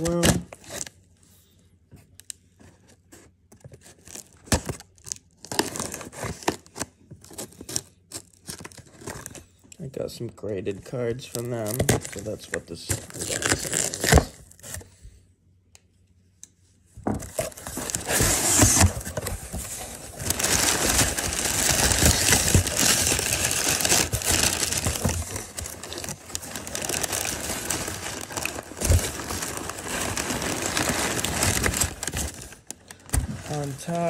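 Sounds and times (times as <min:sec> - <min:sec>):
packing paper crinkling: 0:11.1 - 0:14.9, 0:17.3 - 0:34.0.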